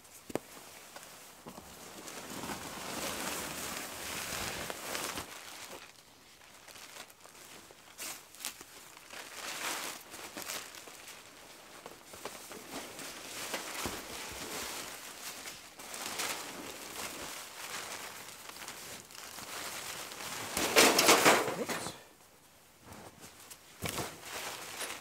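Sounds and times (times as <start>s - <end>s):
tarp rustling and crinkling: 0.0s - 22.1s, 22.8s - 25.0s.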